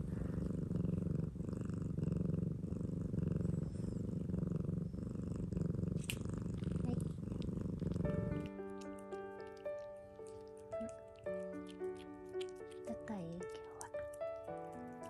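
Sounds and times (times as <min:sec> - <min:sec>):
cat purring: 0:00.0 - 0:15.0.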